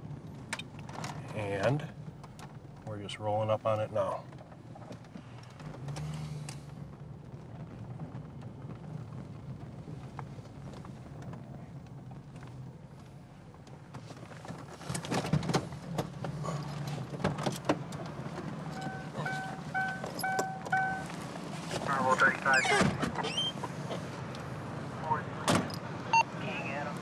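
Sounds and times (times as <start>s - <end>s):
car engine humming: 0.0s - 27.0s
short electronic beeps: 18.8s - 21.1s.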